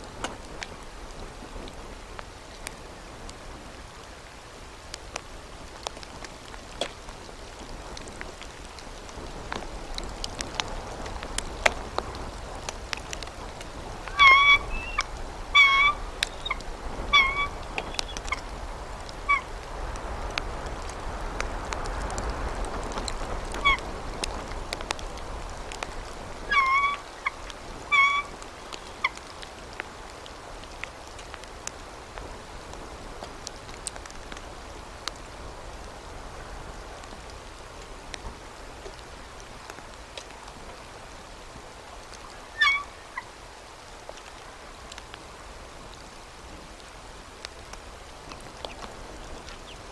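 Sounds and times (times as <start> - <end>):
faint ticks: 4.9 - 15.2, 17.6 - 26.2, 37.0 - 41.3
eagle chirping calls: 14.1 - 18.3, 26.5 - 27.3, 27.9 - 28.3, 42.6 - 43.2.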